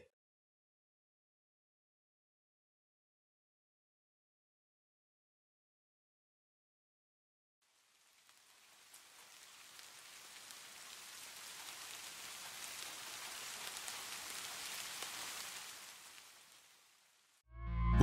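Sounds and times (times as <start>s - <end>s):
faint falling rain: 7.6s - 17.4s
raindrop ticks: 7.9s - 16.7s.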